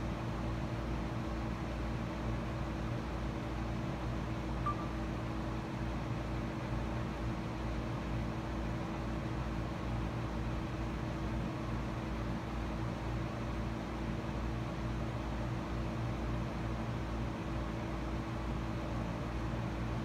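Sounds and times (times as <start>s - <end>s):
electrical hum: 4.2s - 6.6s
brief high blip: 4.6s - 5.0s.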